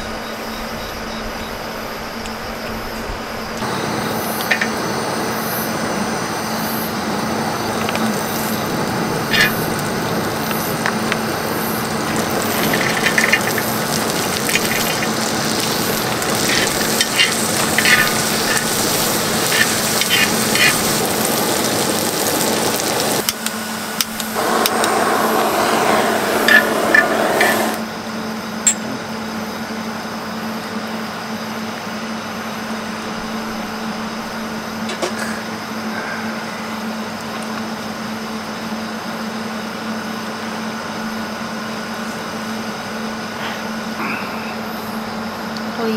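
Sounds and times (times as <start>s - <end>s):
food sizzling: 3.4s - 27.9s.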